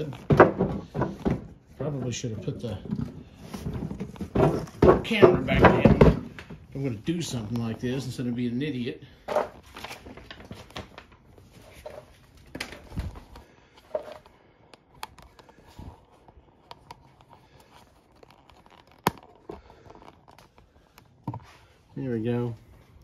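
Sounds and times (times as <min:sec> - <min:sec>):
phone handling rustling and clicks: 0:09.3 - 0:21.6.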